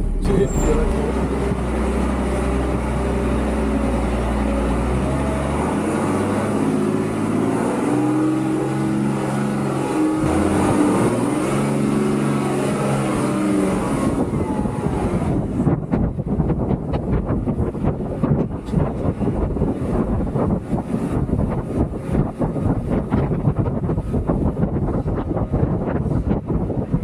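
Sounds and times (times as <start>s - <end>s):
diesel truck engine running: 0.0s - 27.0s.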